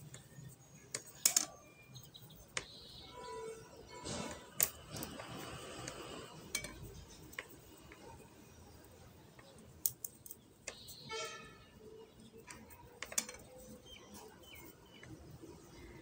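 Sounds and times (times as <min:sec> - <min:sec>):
knitting needles clicking: 0:00.0 - 0:01.7, 0:02.3 - 0:02.8, 0:04.5 - 0:08.2, 0:08.8 - 0:11.1, 0:12.1 - 0:15.6.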